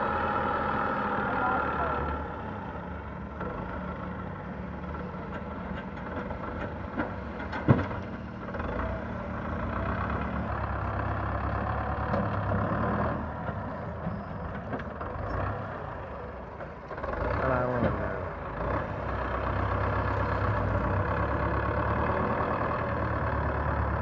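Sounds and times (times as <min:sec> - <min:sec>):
tractor diesel engine running: 0:00.0 - 0:24.0.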